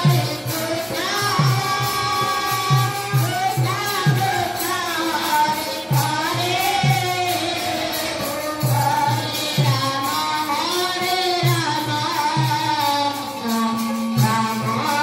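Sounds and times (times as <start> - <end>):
devotional group singing: 0.0 - 15.0
instrumental accompaniment: 0.0 - 15.0.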